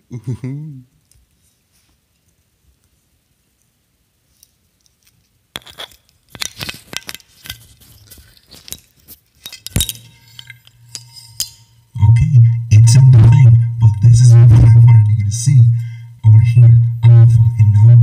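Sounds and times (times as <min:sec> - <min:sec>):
glass bottle clinking and rattling: 0:05.6 - 0:11.8
low steady hum: 0:05.6 - 0:18.0.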